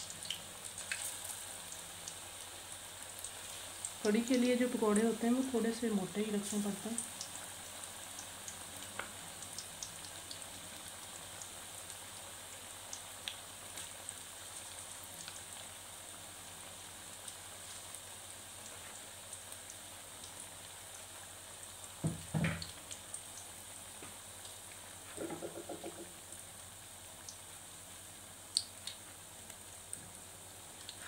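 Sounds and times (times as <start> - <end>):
batter deep-frying sizzle: 0.0 - 31.0
dull knock: 22.0 - 22.6, 25.2 - 26.1.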